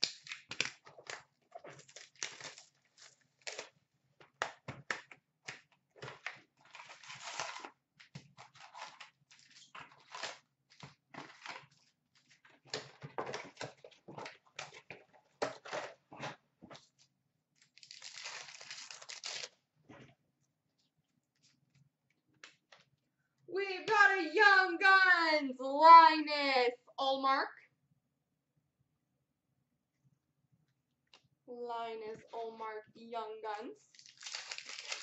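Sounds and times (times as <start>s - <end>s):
packaging tearing: 0.0s - 3.7s, 6.6s - 7.7s, 8.4s - 11.6s, 17.6s - 19.6s, 33.9s - 35.0s
plastic wrapping crinkling: 6.0s - 7.7s, 17.6s - 19.6s, 33.9s - 35.0s.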